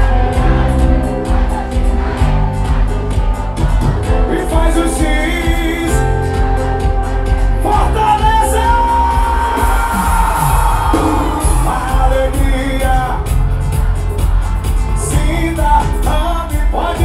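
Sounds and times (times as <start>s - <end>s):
crowd shouting along: 0.0s - 4.3s, 8.4s - 12.2s
amplified singing: 0.0s - 17.0s
heavy bass beat: 0.0s - 17.0s.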